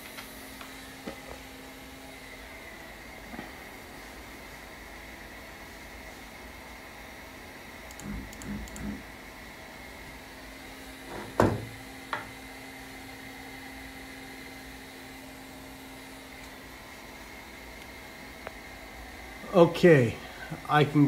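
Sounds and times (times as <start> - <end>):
faint background hum: 0.0 - 21.0
low steady hum: 0.0 - 21.0.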